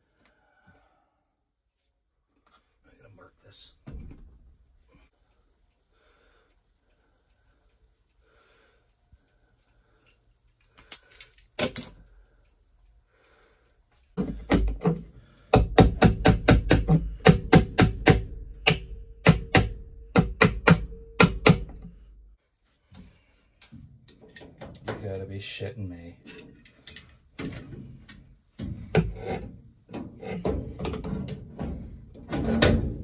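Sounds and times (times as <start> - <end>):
hammer striking metal punch: 15.5 - 21.9.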